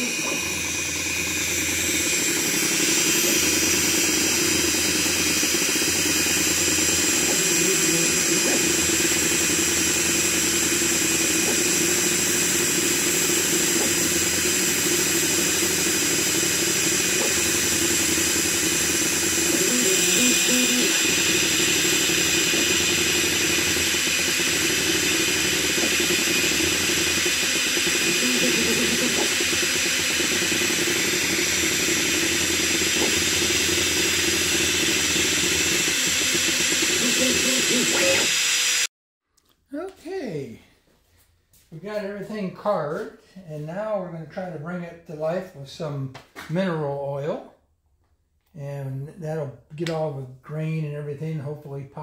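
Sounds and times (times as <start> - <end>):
laser engraver hiss and whine: 0.0 - 38.9
machine motors: 0.0 - 38.9.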